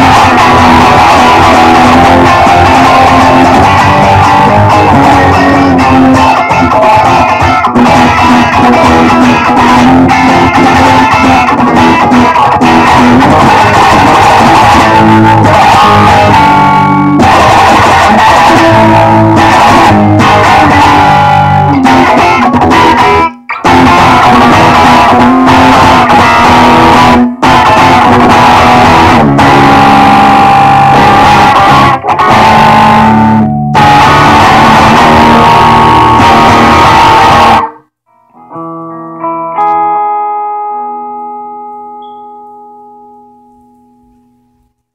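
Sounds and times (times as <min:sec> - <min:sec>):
punk rock on guitars: 0:00.0 - 0:42.1.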